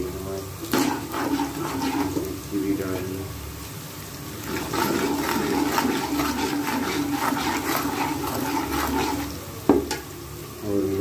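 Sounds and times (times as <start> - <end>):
onions sizzling in hot oil: 0.0 - 11.0
metal spoon scraping a pot: 0.8 - 2.2, 4.4 - 9.4.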